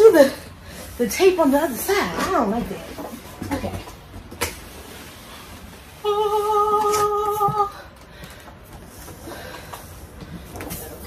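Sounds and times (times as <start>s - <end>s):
woman humming: 6.0s - 7.9s.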